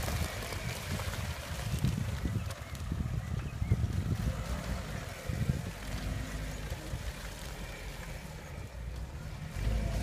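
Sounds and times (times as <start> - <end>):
car engine running in mud: 0.0 - 10.0
wind rumbling on microphone: 0.0 - 10.0.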